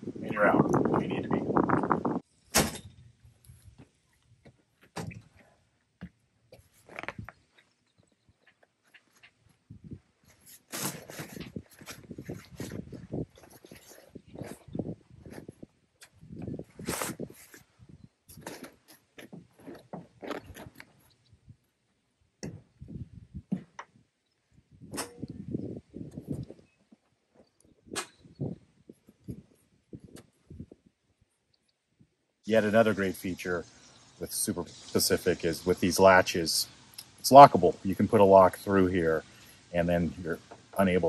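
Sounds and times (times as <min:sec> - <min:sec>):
fabric tent wall rustling: 0:08.8 - 0:21.5.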